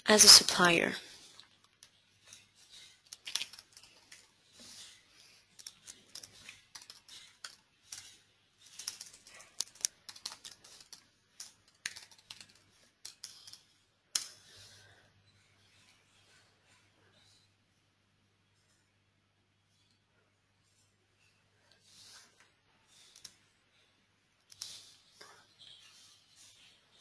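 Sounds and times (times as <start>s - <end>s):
keyboard typing: 5.6s - 8.1s, 8.7s - 14.3s.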